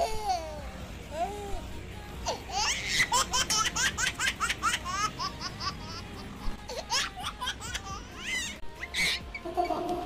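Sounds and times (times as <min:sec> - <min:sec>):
high-pitched squealing laughter: 0:02.5 - 0:10.0.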